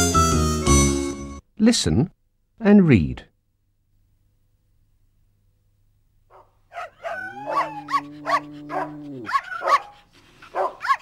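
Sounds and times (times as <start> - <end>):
cartoon dog yipping and barking: 6.3 - 11.0.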